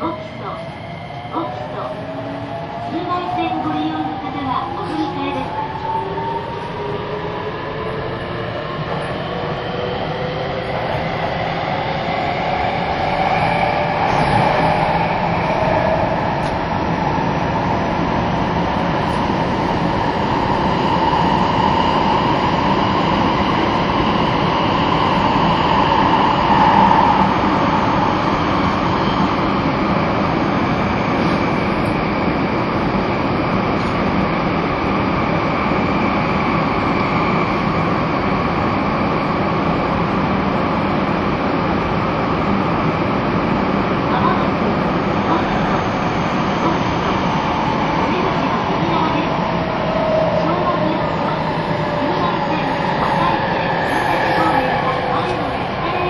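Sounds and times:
train running noise in tunnel: 0.0 - 56.0.

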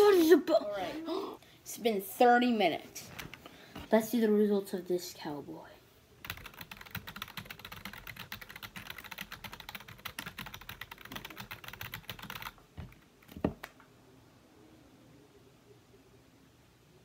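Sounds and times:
typing on computer keyboard: 6.2 - 13.7.

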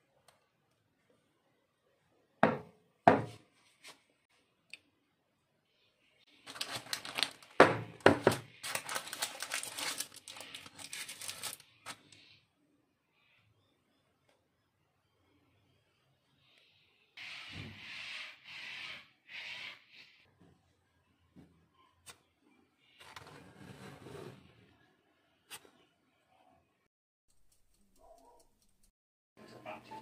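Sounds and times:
baking paper crinkling: 6.3 - 12.2.

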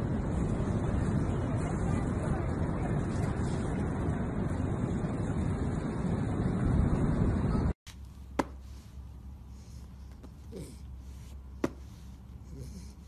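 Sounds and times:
wind buffeting microphone: 0.0 - 7.8.

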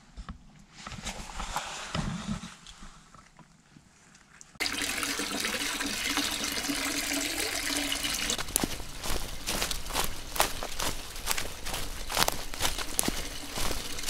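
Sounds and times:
water pouring into a pool: 4.6 - 8.4, 12.9 - 14.0.

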